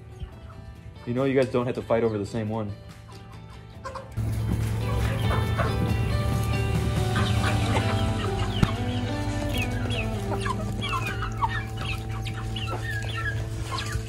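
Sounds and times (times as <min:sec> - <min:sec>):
background music of held chords: 0:00.0 - 0:14.0
hens clucking: 0:02.9 - 0:14.0.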